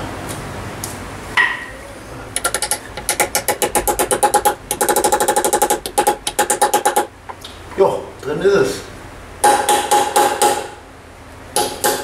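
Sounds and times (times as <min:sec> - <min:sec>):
rapid hammer taps on metal: 0:02.4 - 0:07.1.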